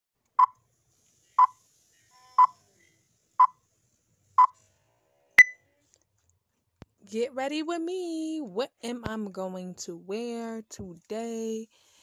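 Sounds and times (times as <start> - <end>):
short electronic beeps: 5.4 - 5.6.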